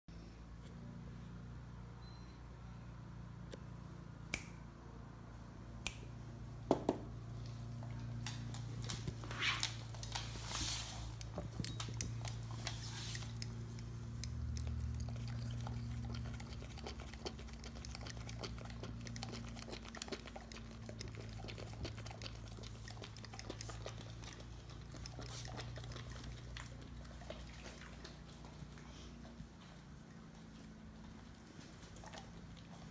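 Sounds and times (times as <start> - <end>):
dog lapping milk: 14.4 - 28.6.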